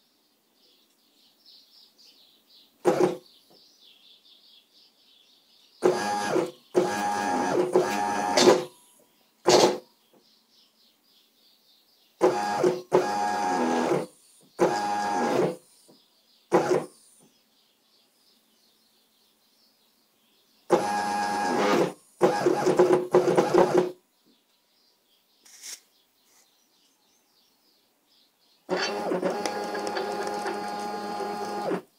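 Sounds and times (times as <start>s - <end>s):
stepper motor whine: 5.8s - 8.6s, 28.7s - 31.8s.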